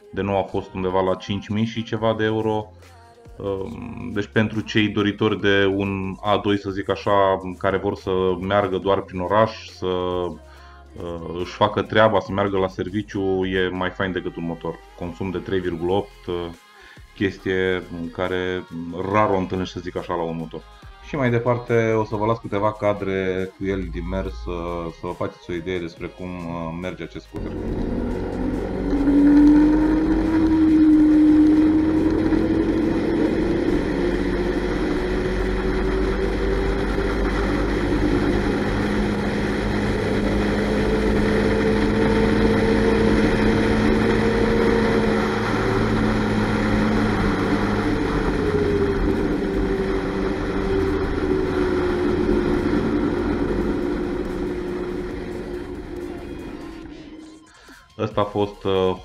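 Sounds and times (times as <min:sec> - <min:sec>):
scooter engine running: 0:27.4 - 0:57.6.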